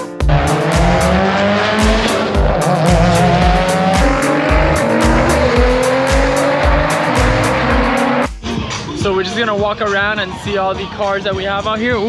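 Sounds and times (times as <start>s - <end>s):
background music with beat: 0.0s - 12.0s
racing car engines accelerating: 0.2s - 8.3s.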